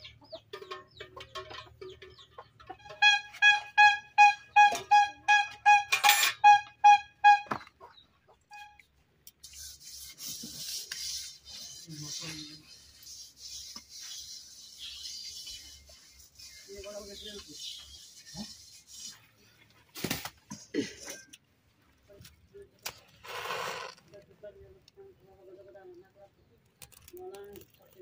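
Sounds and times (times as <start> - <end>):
hand rubbing wet mud on pot: 9.4 - 19.4.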